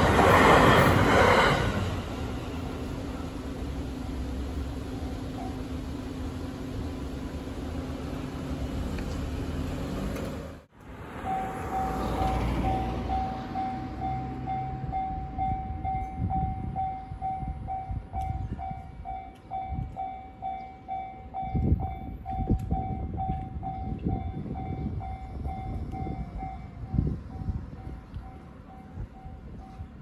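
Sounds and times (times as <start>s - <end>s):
level crossing alarm bell: 11.2s - 27.0s.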